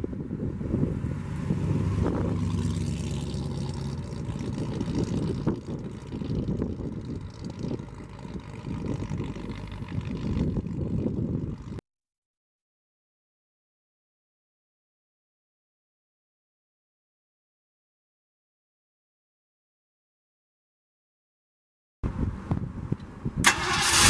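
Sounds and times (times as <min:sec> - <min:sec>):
wind buffeting microphone: 0:00.0 - 0:11.8, 0:22.0 - 0:24.0
truck engine driving past: 0:00.3 - 0:11.8.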